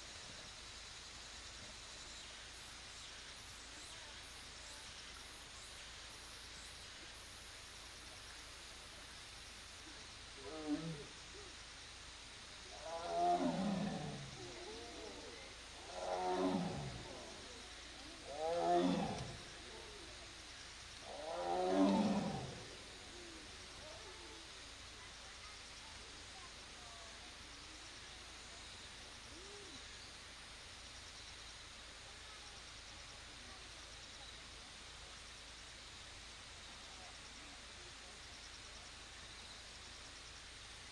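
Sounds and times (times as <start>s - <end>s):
steady hiss: 0.0s - 40.9s.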